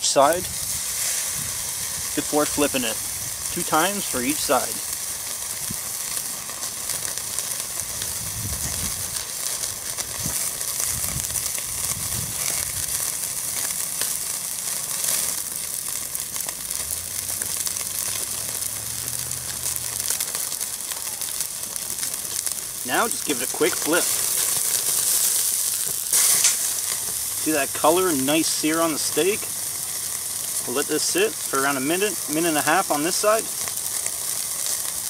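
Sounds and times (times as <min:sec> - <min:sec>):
charcoal crackling: 0:00.0 - 0:35.0
steak sizzling on a grill: 0:00.0 - 0:35.0.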